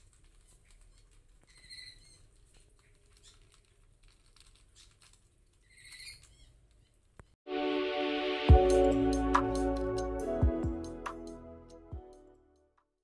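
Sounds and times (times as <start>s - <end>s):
light ticks and rustles: 0.0s - 7.4s
parrot squeaky calls: 1.5s - 2.3s, 5.6s - 6.6s.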